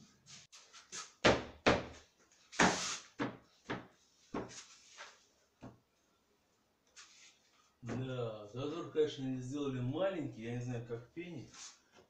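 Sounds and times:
knocks and thuds on wood: 0:01.2 - 0:02.0.

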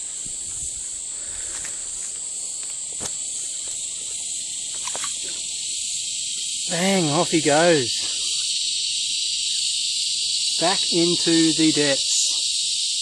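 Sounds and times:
insect chorus drone: 0:00.0 - 0:13.0.

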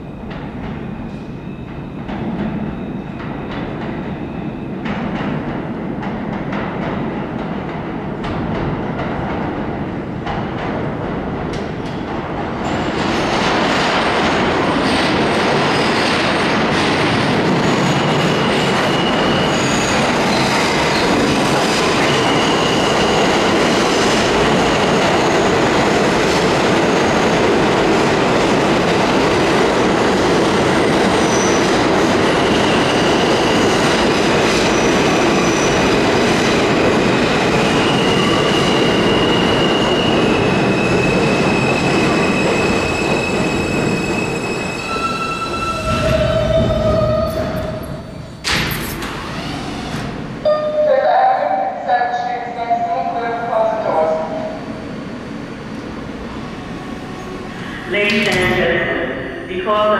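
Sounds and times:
train wheels rumbling on rails: 0:00.0 - 0:50.5
high-pitched wheel squeals: 0:42.9 - 0:47.8.

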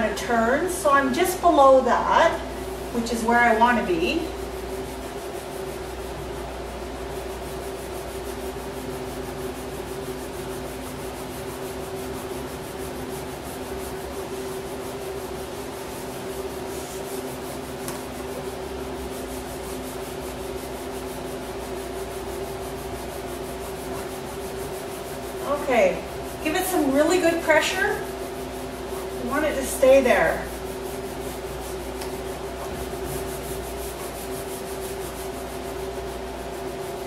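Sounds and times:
constant low hum: 0:00.0 - 0:37.0
fingers rubbing a decal on plastic: 0:15.9 - 0:37.0.

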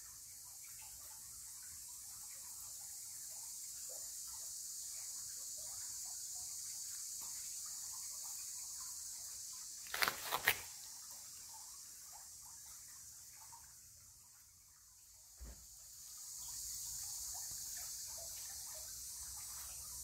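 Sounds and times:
quick sharp clicks: 0:09.9 - 0:10.7.

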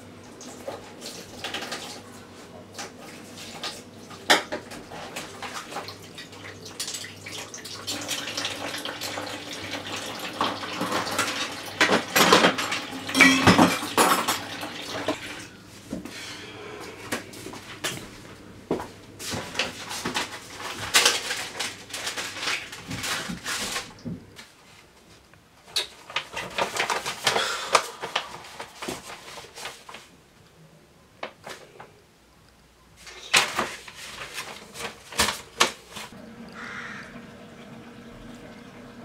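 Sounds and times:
dishes and cutlery clattering: 0:10.5 - 0:15.1.

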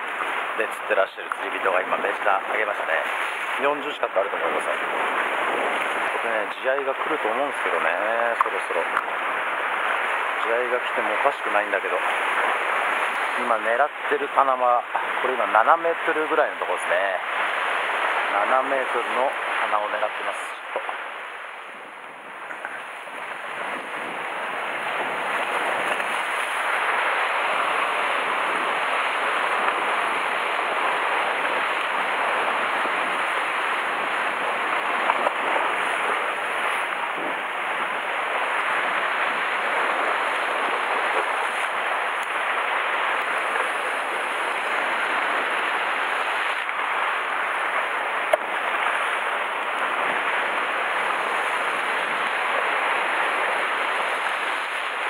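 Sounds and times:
surf washing against rocks: 0:00.0 - 0:55.0.

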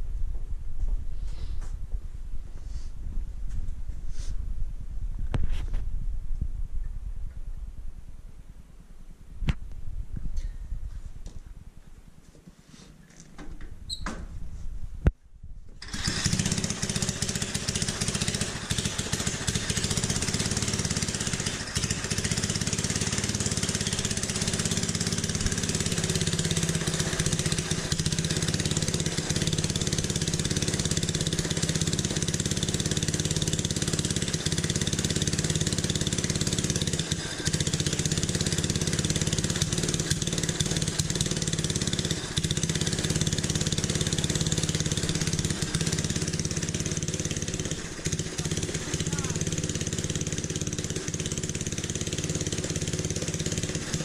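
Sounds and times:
single-cylinder engine idling: 0:15.8 - 0:54.0.

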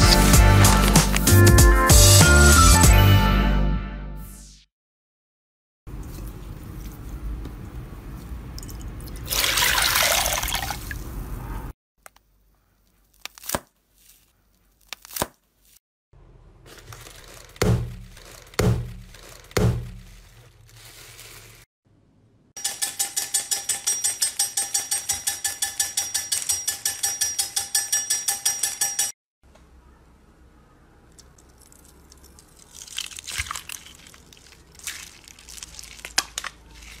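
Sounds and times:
foil crinkling: 0:00.0 - 0:01.4, 0:16.7 - 0:21.7, 0:31.4 - 0:37.0
hands thumping foil balloon: 0:00.0 - 0:01.4, 0:16.7 - 0:21.6
candy-cutting machine clicking: 0:22.6 - 0:27.6.

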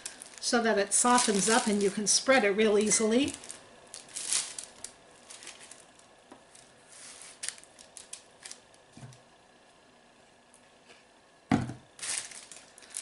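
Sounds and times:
spatula scraping and rustling: 0:06.8 - 0:07.7.

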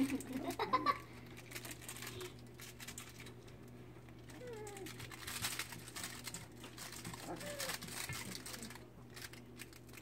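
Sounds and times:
paws scrabbling and pattering: 0:01.2 - 0:10.0
puppy whining: 0:04.2 - 0:05.2, 0:07.0 - 0:08.6
puppy cries: 0:07.2 - 0:07.9.

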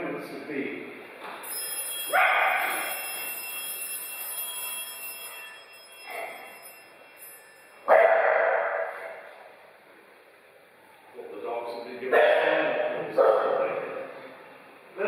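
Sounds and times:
bell ringing: 0:01.2 - 0:07.9.

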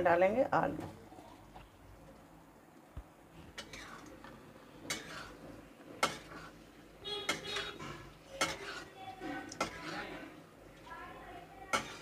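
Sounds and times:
metal spatula scraping a pan: 0:03.4 - 0:10.4, 0:11.6 - 0:12.0.

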